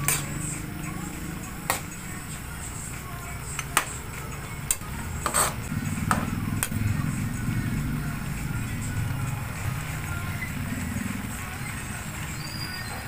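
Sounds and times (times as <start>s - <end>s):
steady low hum: 0.0s - 12.3s
metal spatula scraping a wok: 5.2s - 5.7s.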